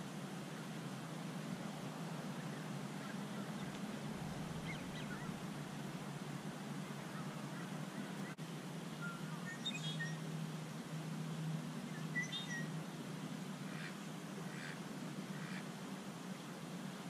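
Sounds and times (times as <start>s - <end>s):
steady low hum: 0.0s - 17.0s
waterfowl calling: 2.5s - 5.5s, 13.6s - 15.7s.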